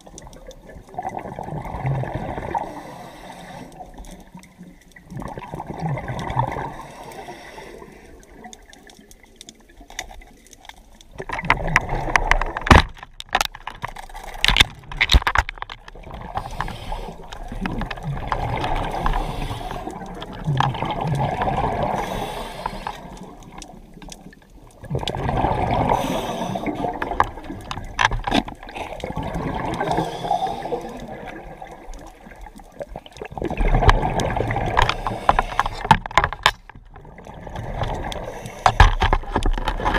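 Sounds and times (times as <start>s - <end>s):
bubbles gurgling: 0.0s - 2.9s, 3.8s - 7.0s, 11.1s - 12.7s, 15.8s - 35.9s, 36.9s - 38.4s
diver breathing through regulator: 2.5s - 3.9s, 6.6s - 8.2s, 16.3s - 17.5s, 18.7s - 20.1s, 21.9s - 23.3s, 25.8s - 27.0s, 29.8s - 31.3s, 34.7s - 35.9s, 38.2s - 38.9s.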